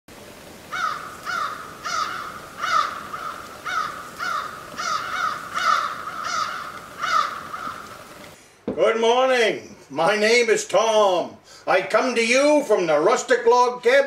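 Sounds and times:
bird calls: 0.6s - 8.4s.

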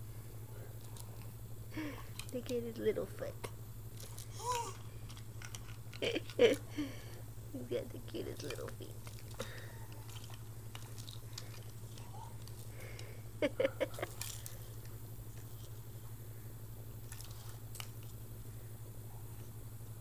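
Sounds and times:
baby chewing plastic toy: 3.9s - 6.7s, 8.4s - 13.2s.

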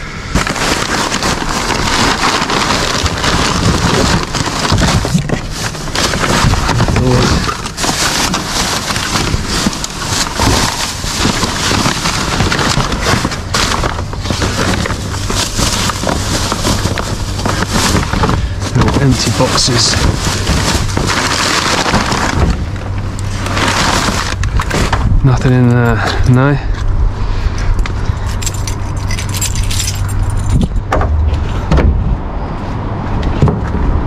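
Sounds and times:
plastic and cardboard rustling: 0.0s - 26.8s.

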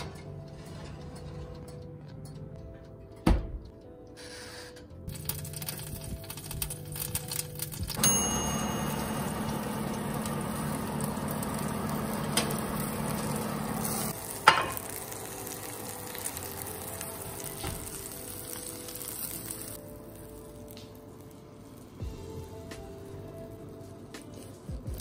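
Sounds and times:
oven humming: 0.0s - 4.2s, 4.9s - 25.0s
food sizzling in baking dish: 6.9s - 22.0s.

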